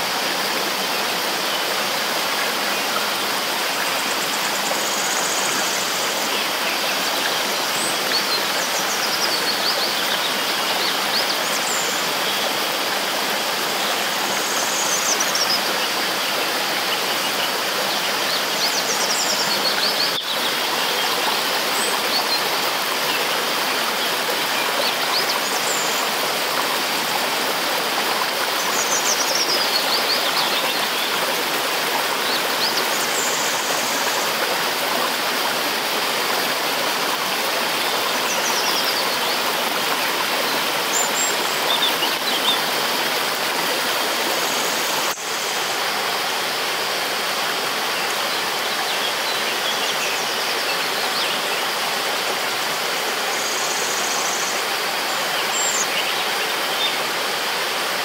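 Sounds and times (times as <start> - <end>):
stream rushing over stones: 0.0 - 58.0.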